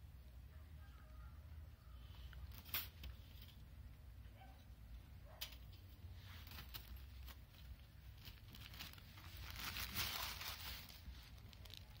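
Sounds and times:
plastic packaging crinkling: 0:06.4 - 0:12.0.

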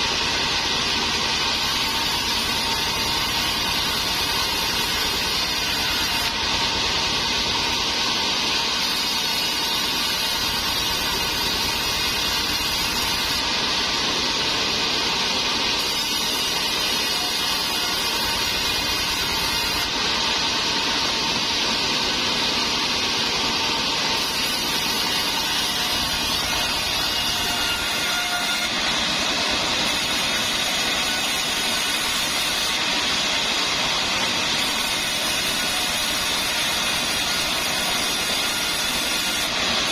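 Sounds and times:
band saw blade hissing through wood: 0:00.0 - 0:06.4, 0:08.6 - 0:14.0, 0:15.5 - 0:21.0.

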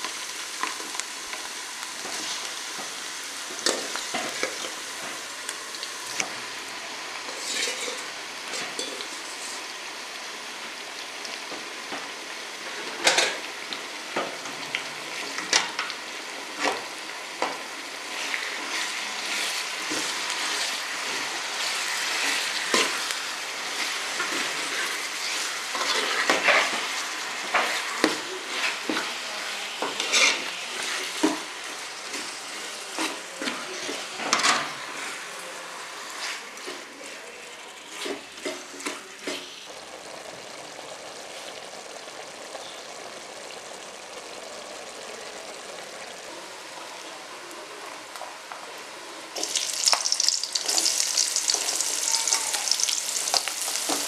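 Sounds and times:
food sizzling in a pot: 0:00.0 - 0:54.0
onions sizzling in hot oil: 0:00.0 - 0:54.0
metal spoon scraping a pot: 0:07.3 - 0:09.0, 0:30.0 - 0:30.4.

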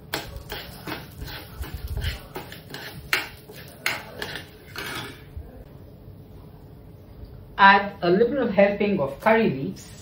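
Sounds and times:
metal spoon scraping a pan: 0:00.0 - 0:05.3.

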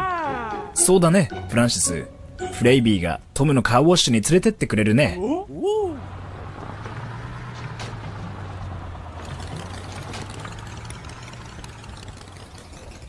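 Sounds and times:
cartoon engine idling hum: 0:08.1 - 0:13.0.

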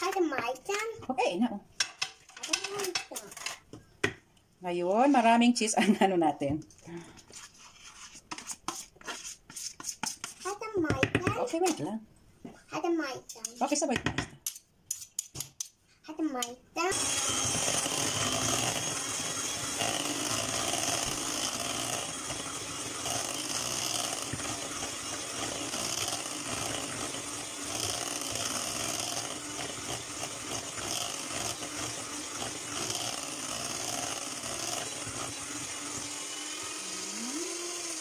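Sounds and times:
electric hand mixer running: 0:16.8 - 0:38.0.

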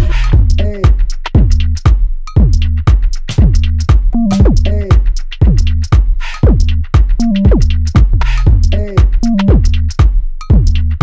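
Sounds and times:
drum machine beat: 0:00.0 - 0:11.0
hi-hat ticks: 0:00.0 - 0:11.0
gliding synth bass: 0:03.4 - 0:09.9.

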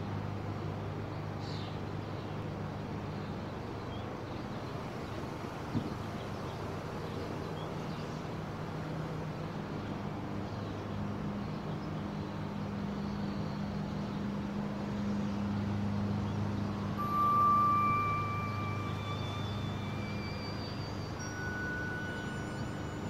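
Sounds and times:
low rumbling drone with hiss: 0:00.0 - 0:23.0
high held tone: 0:16.6 - 0:23.0.

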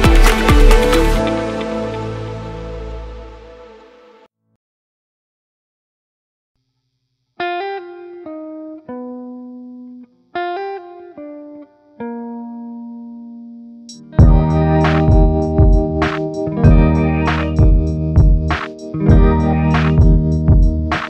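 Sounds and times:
music with steady drum beat: 0:00.0 - 0:01.6, 0:13.9 - 0:21.0
plucked note melody: 0:00.0 - 0:04.2, 0:14.2 - 0:21.0.

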